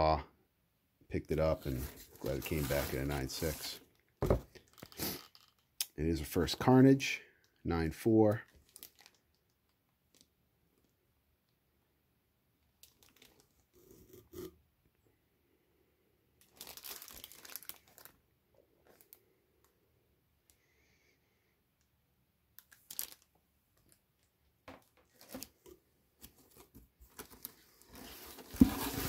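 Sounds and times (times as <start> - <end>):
paper packing crinkling: 1.5 - 3.8, 8.6 - 9.2, 16.4 - 18.2, 22.7 - 23.2, 25.1 - 29.0
plastic bags crinkling: 1.5 - 3.8, 8.5 - 9.2, 12.8 - 13.4, 16.4 - 18.2, 22.6 - 24.0.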